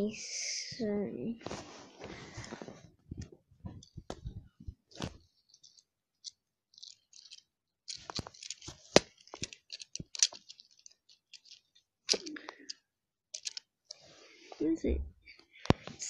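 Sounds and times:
toy pieces clicking and knocking: 0:05.2 - 0:12.8, 0:13.4 - 0:14.0.

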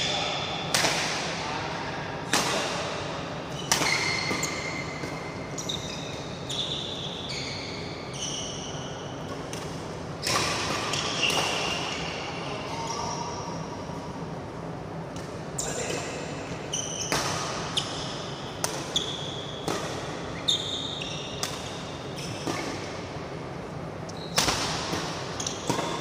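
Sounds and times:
shoes squeaking on court floor: 0:03.5 - 0:13.6, 0:16.6 - 0:22.9, 0:25.3 - 0:26.0
racquets hitting shuttlecock: 0:09.2 - 0:12.1, 0:17.0 - 0:17.9, 0:18.5 - 0:20.4, 0:21.3 - 0:23.0, 0:24.3 - 0:26.0.

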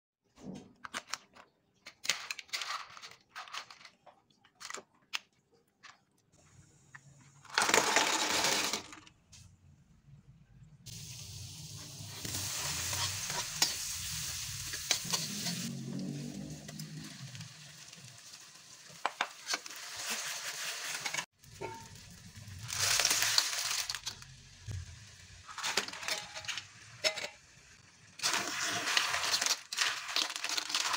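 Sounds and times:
kitchen clicks and scrapes: 0:00.4 - 0:06.1, 0:12.1 - 0:15.7, 0:18.9 - 0:22.0, 0:25.4 - 0:27.5, 0:28.2 - 0:30.9
onions sizzling in a wok: 0:10.9 - 0:30.9.

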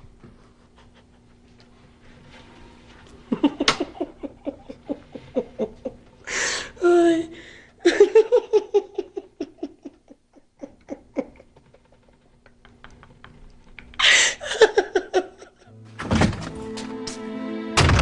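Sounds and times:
woman sobbing: 0:03.3 - 0:11.5, 0:13.8 - 0:15.7
woman laughing breathily: 0:03.3 - 0:15.7
woman gasping: 0:06.2 - 0:07.8, 0:14.0 - 0:14.6
dramatic music: 0:15.7 - 0:18.0.

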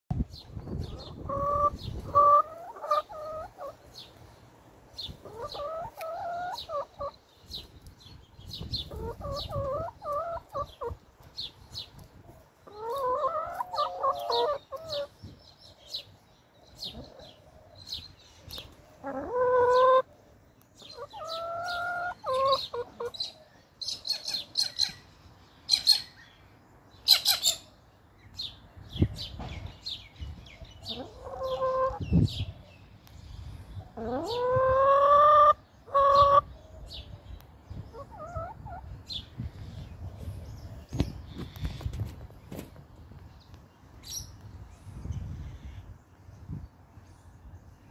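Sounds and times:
hens wavering calls: 0:12.7 - 0:15.1.

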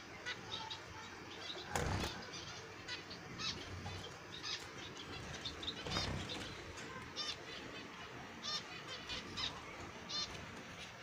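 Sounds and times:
finches chirping: 0:00.0 - 0:11.0
wings fluttering: 0:05.2 - 0:07.2.

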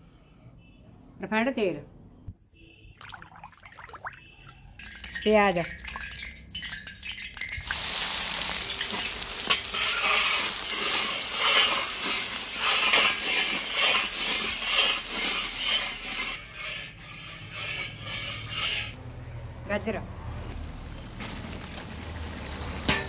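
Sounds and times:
onions sizzling in hot oil: 0:05.0 - 0:16.4
metal spatula scraping and stirring: 0:08.4 - 0:19.0.

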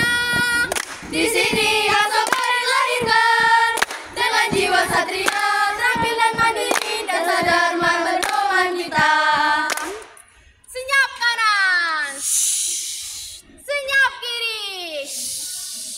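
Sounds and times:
girls singing in unison: 0:00.0 - 0:10.2
hands clapping: 0:00.0 - 0:10.2.

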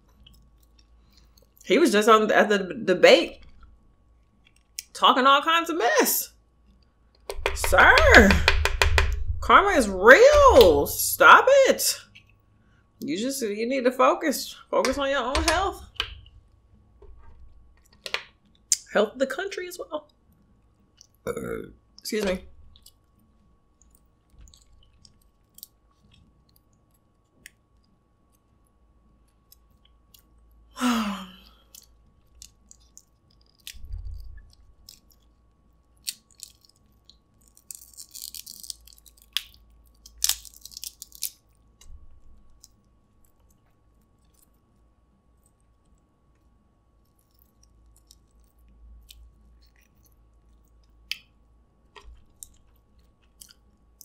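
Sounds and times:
chewing and mouth sounds: 0:00.0 - 0:01.7, 0:22.6 - 0:28.6, 0:31.5 - 0:46.5, 0:47.1 - 0:54.0
crab shell cracking: 0:03.4 - 0:05.0, 0:21.9 - 0:30.5, 0:31.4 - 0:54.0.

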